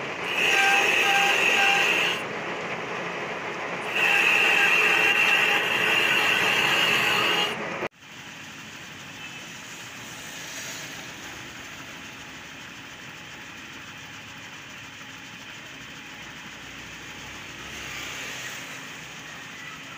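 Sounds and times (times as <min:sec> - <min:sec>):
lathe running: 0:00.0 - 0:19.9
lathe scraping with high ring: 0:00.2 - 0:02.3, 0:03.8 - 0:07.6.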